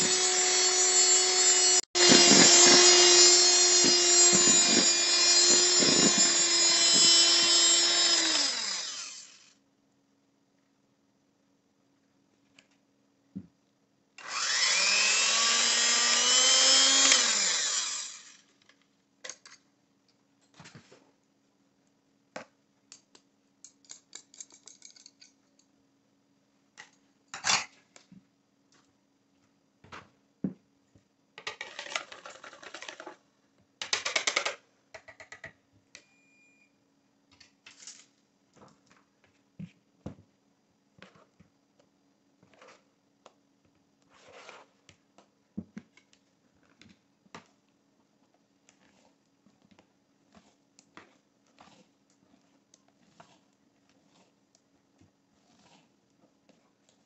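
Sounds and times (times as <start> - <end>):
electric hand mixer whirring: 0.0 - 9.4, 14.2 - 18.4
utensils scraping bowl: 50.3 - 54.6, 55.3 - 57.0.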